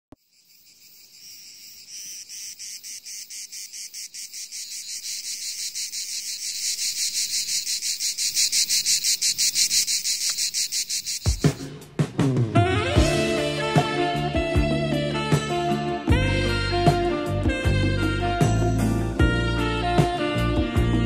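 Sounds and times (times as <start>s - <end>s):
insects chirring: 0.1s - 11.7s.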